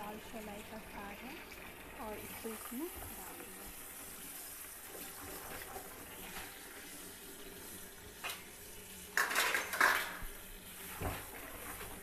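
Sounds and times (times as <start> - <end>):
tap water running into bucket: 0.0 - 12.0.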